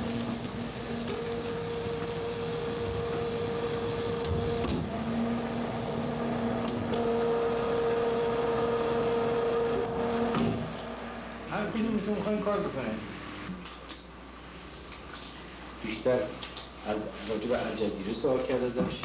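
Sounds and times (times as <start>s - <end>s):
cabinet humming: 0.0s - 13.5s.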